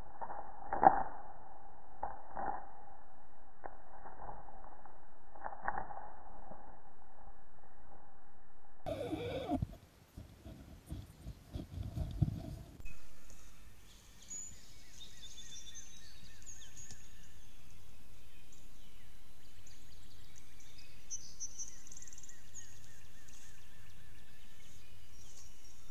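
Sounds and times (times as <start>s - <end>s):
songbirds chirping and trilling: 8.9s - 10.2s, 13.3s - 25.9s
steady outdoor hiss: 8.9s - 25.9s.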